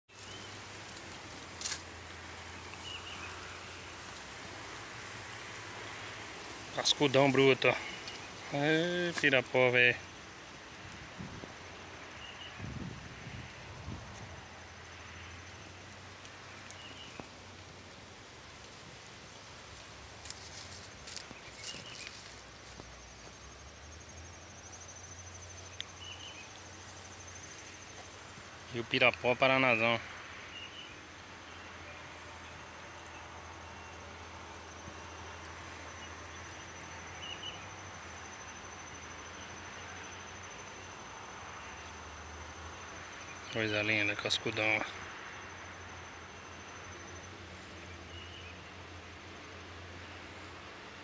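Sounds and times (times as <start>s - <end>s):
insect trilling: 0.1s - 18.3s
low hum and hiss: 0.2s - 51.0s.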